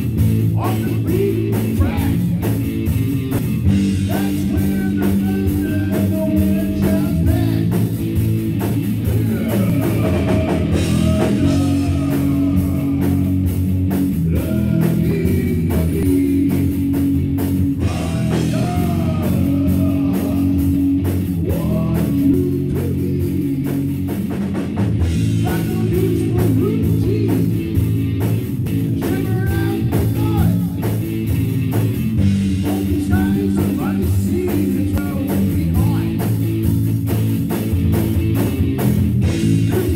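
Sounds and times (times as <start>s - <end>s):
drum kit beat: 0.0s - 39.9s
guitar: 0.0s - 39.9s
person singing: 0.6s - 2.4s, 4.0s - 7.9s, 9.0s - 13.5s, 14.2s - 16.8s, 17.8s - 20.8s, 21.4s - 23.8s, 32.6s - 36.3s, 39.6s - 39.9s.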